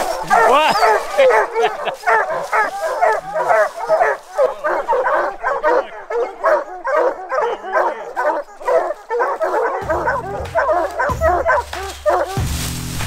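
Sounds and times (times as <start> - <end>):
hounds barking: 0.0 - 12.8
low background music: 9.4 - 13.0.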